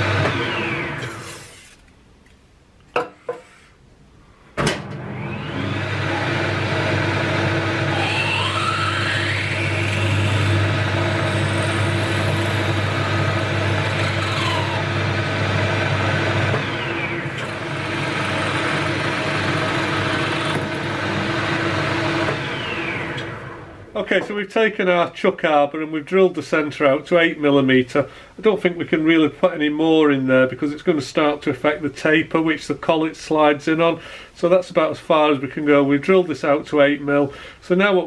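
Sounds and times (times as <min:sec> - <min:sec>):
lathe starting clunk: 0:00.0 - 0:01.4, 0:04.6 - 0:06.6, 0:07.8 - 0:23.8
drill whining: 0:00.0 - 0:01.8, 0:05.1 - 0:23.8
lathe running: 0:00.0 - 0:01.8, 0:05.0 - 0:23.9.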